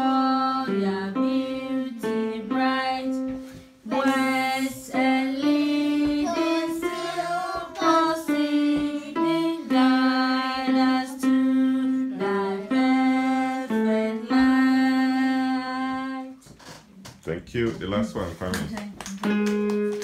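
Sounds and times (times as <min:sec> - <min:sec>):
children singing: 0:00.0 - 0:16.4
electronic keyboard playing slow tune: 0:08.3 - 0:15.6, 0:19.3 - 0:20.0.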